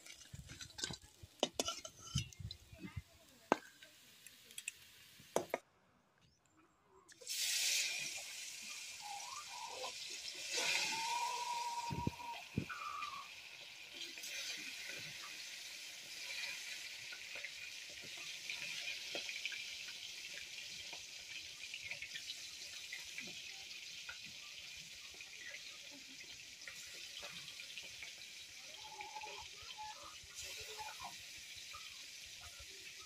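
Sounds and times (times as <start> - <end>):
fish sizzling in hot oil: 0.0 - 2.7, 3.4 - 5.5, 7.2 - 33.0.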